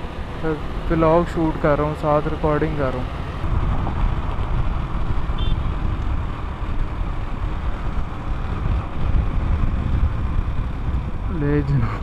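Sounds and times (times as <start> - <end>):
motorcycle engine running: 0.0 - 12.0
wind on microphone: 3.4 - 12.0.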